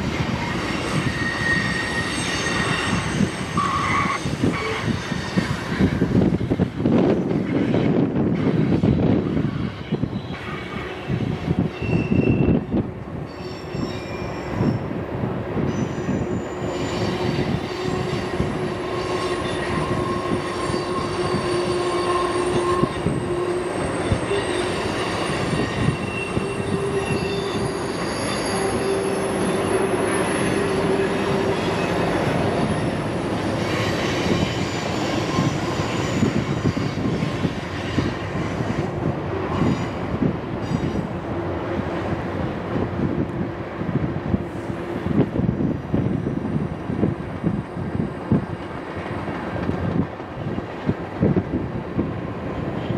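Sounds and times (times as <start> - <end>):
train wheels rumbling on rails: 0.0 - 52.9
wheel flanges squealing: 0.3 - 6.0, 11.6 - 12.7, 15.7 - 41.1.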